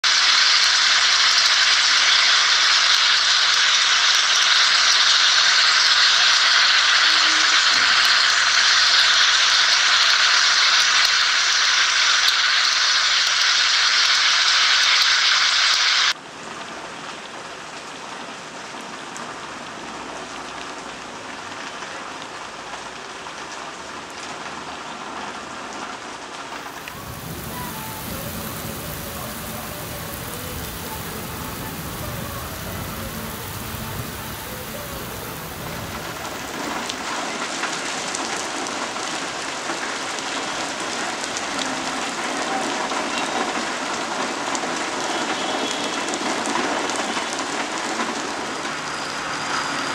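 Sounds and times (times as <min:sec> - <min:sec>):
heavy rain falling: 0:00.0 - 0:12.7, 0:16.5 - 0:49.6.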